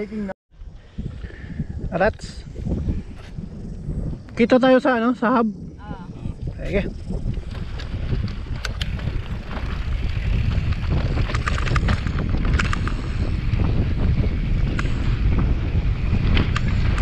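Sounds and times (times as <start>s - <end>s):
wind buffeting microphone: 0.0s - 17.0s
bike rattling and clicking: 6.5s - 17.0s
tyre noise on dirt: 6.9s - 17.0s.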